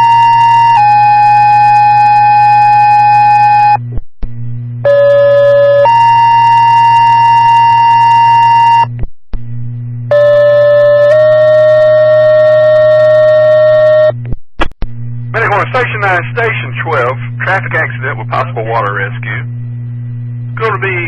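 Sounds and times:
low radio hum: 3.7s - 5.8s, 8.7s - 10.1s, 11.7s - 21.0s.

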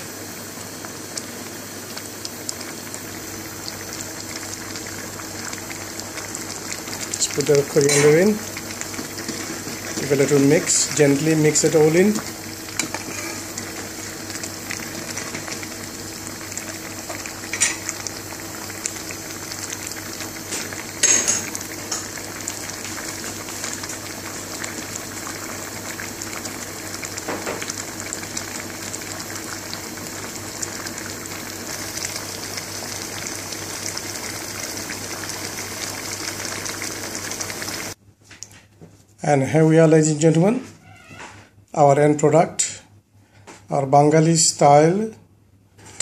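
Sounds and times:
food boiling and bubbling: 0.0s - 38.0s.

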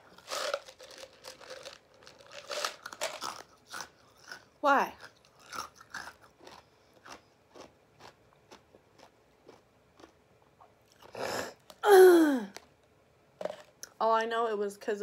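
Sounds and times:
ice cubes crunched between teeth: 0.1s - 4.4s, 5.0s - 10.1s.

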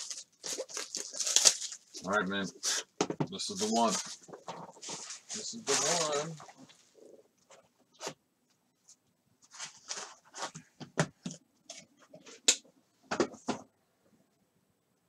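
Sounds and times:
cardboard scraping and rustling: 3.6s - 6.7s, 9.4s - 10.8s.

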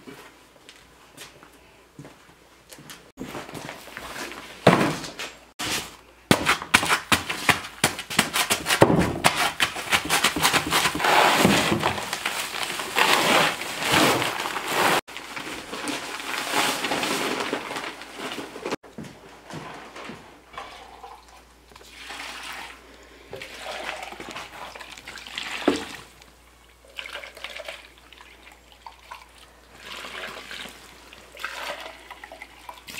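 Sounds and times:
hoe scraping and chopping paper bag: 3.2s - 18.8s
dry mix rustling and sliding: 6.8s - 18.8s
paper bag tearing: 9.3s - 18.8s.

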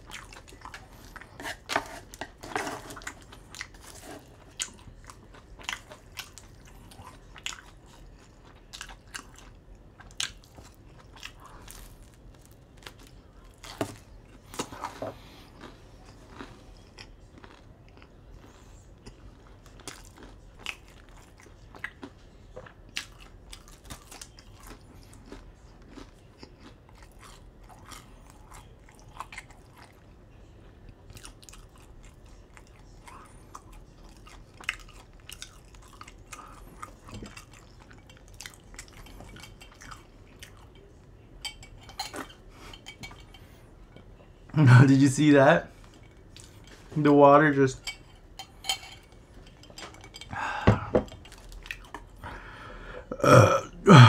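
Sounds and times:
crunchy bites of pizza: 4.6s - 30.0s.

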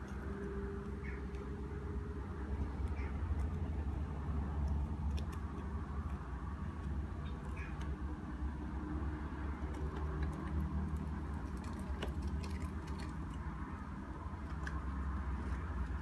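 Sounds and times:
hamster claws clicking and scratching: 0.0s - 16.0s.

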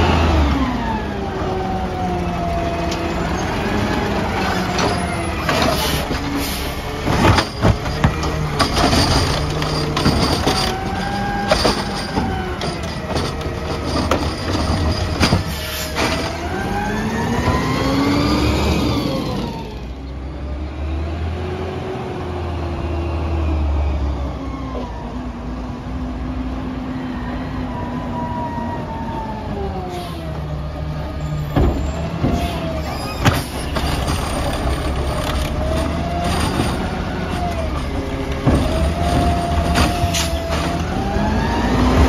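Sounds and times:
truck engine and hydraulics: 0.0s - 42.0s
metallic clanks of truck arm: 4.4s - 16.6s, 31.2s - 41.0s.

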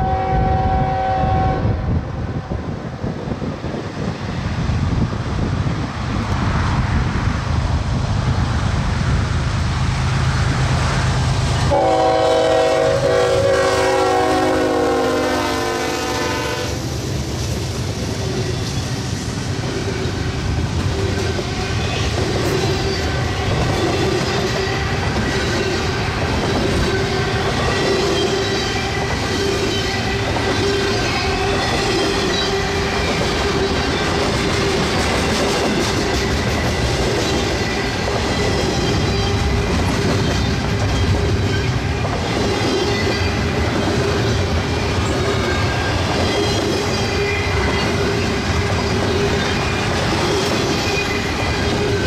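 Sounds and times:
locomotive air horn blast: 0.0s - 1.8s, 11.7s - 16.8s
rumble of passing trains: 0.0s - 52.0s
train wheels clicking over rail joints: 16.9s - 52.0s.

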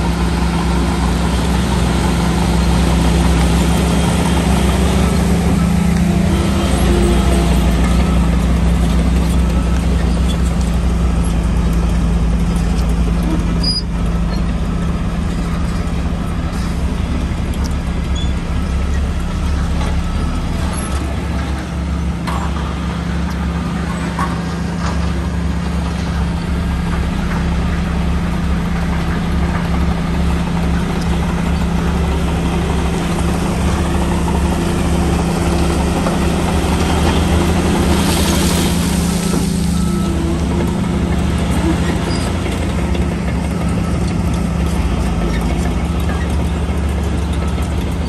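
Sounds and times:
bulldozer diesel engine humming: 0.0s - 48.0s.

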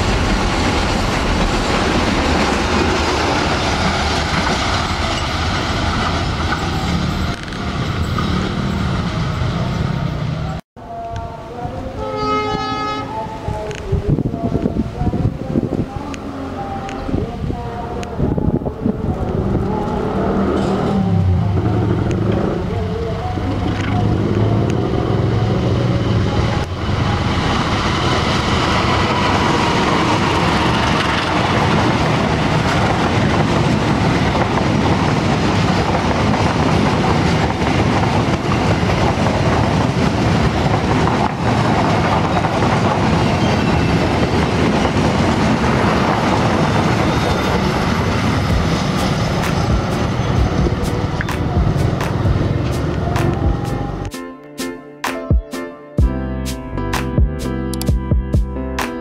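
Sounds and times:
train wheels on rails: 0.0s - 10.6s, 23.2s - 54.1s.

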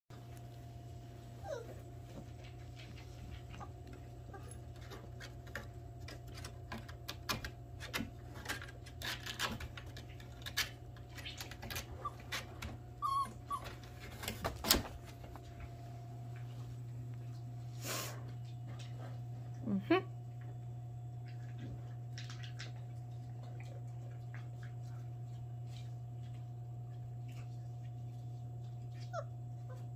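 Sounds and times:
puppy whimper: 1.4s - 2.2s, 3.6s - 5.0s, 11.3s - 14.3s, 28.9s - 29.9s.

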